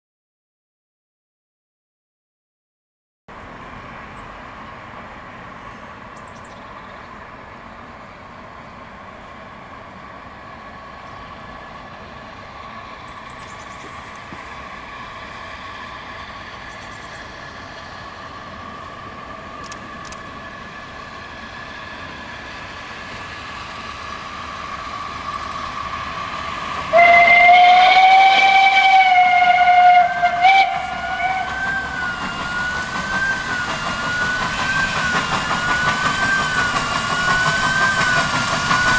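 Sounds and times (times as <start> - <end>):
steam locomotive running: 3.3 - 38.9
steam whistle blast: 26.9 - 38.9.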